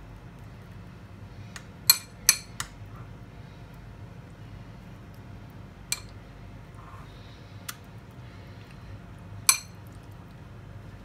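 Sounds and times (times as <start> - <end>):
spoon clinking on baking tray: 1.9 - 2.7, 9.4 - 9.8.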